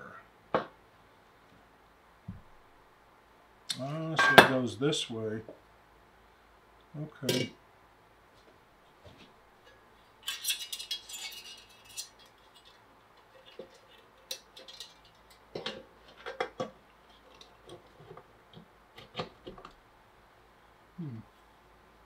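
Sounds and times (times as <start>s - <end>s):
metal parts clinking and scraping: 10.2s - 17.8s.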